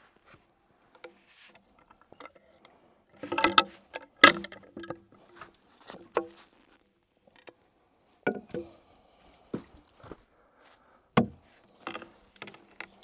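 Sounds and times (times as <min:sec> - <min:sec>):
tool knocking on log bark: 0:11.2 - 0:11.4.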